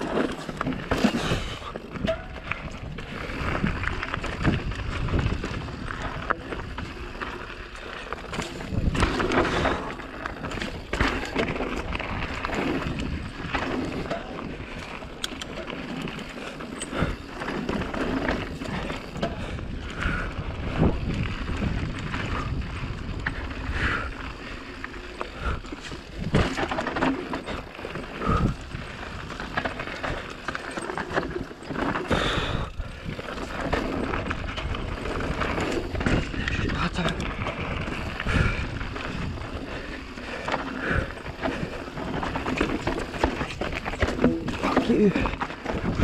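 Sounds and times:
bike knocks and rattles: 0.0s - 24.1s, 25.0s - 46.0s
tyre noise on dirt: 0.0s - 46.0s
wind rush: 19.4s - 24.5s, 32.1s - 40.0s.

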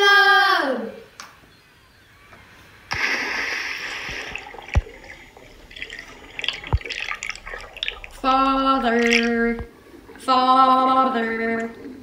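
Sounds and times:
water splash: 2.9s - 10.4s
deep plops: 2.9s - 11.7s
water bubbling and dripping: 2.9s - 12.0s.

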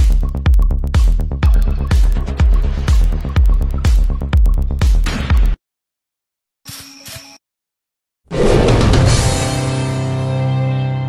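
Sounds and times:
electronic dance music: 0.0s - 5.4s.

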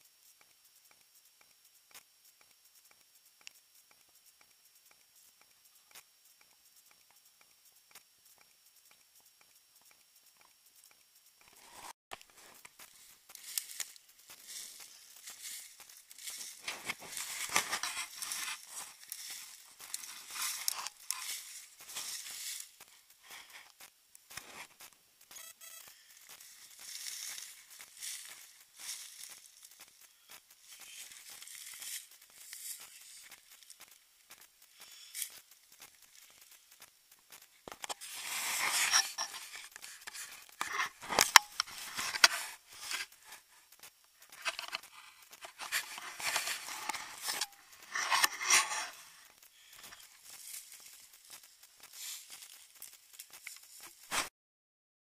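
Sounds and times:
dry leaves rustling and crunching: 11.7s - 23.5s, 26.2s - 33.8s, 37.8s - 43.6s, 44.3s - 54.1s.

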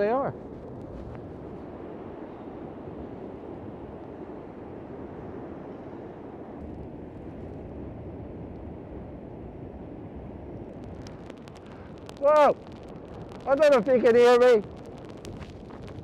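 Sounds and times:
strong wind buffeting microphone: 0.0s - 16.0s.

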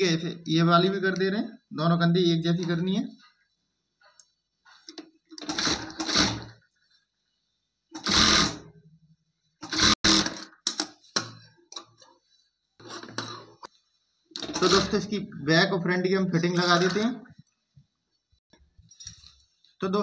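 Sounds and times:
electric sewing machine stitching: 5.4s - 6.6s, 8.0s - 8.7s, 9.6s - 10.5s.

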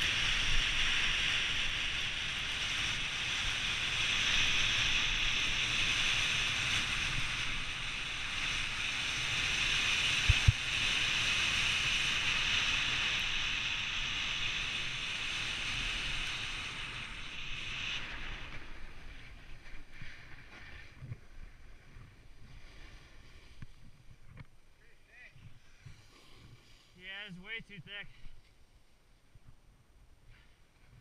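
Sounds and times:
snowboard hissing on snow: 0.0s - 23.6s
snowboard scraping: 0.0s - 24.3s
wind on microphone: 0.0s - 24.6s.

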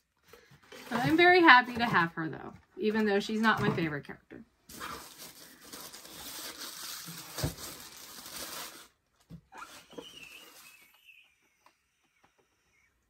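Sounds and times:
packaging rustling: 4.7s - 10.9s.

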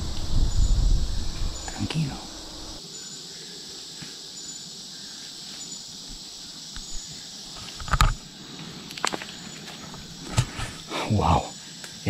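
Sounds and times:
insect chorus: 0.0s - 12.0s.

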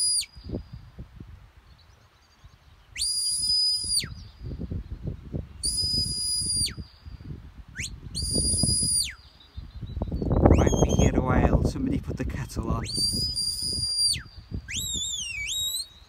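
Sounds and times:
high whistle notes: 3.0s - 4.2s, 5.6s - 6.9s, 7.7s - 9.2s, 10.4s - 11.1s, 12.9s - 16.0s.

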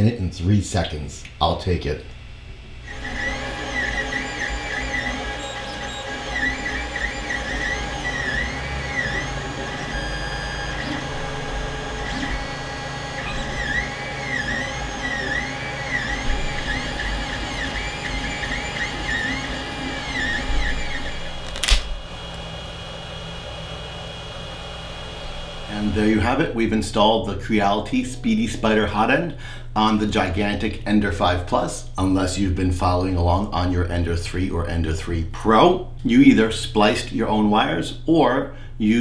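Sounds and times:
fan whir: 0.0s - 33.4s
steady hum: 0.0s - 37.8s
sharp click: 21.4s - 22.0s.

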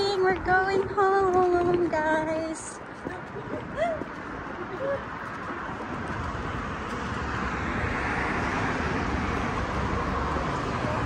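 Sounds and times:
cars driving past: 2.2s - 11.0s.

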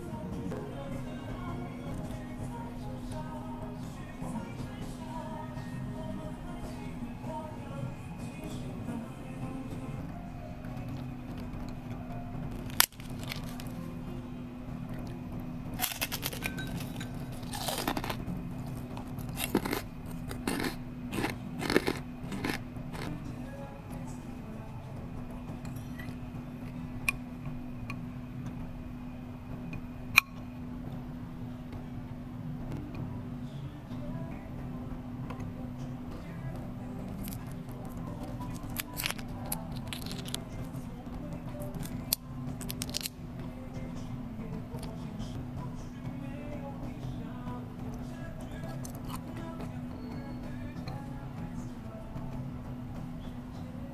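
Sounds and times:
background music: 0.0s - 53.9s
steady low hum: 0.0s - 53.9s
crispy fish skin crackling: 12.5s - 13.8s, 15.8s - 23.2s, 38.5s - 40.5s, 41.7s - 43.2s.

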